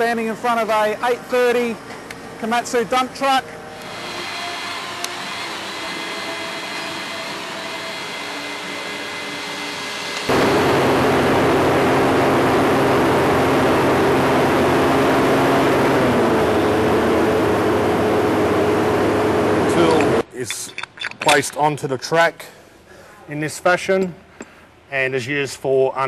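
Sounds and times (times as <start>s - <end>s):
machinery humming: 0.0s - 20.3s
loud rough machine drone: 3.7s - 20.2s.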